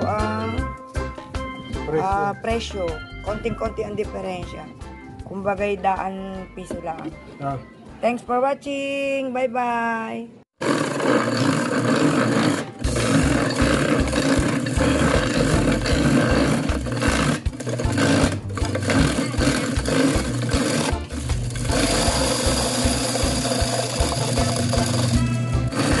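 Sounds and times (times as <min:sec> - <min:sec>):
ice crusher grinding ice: 0:10.6 - 0:26.0.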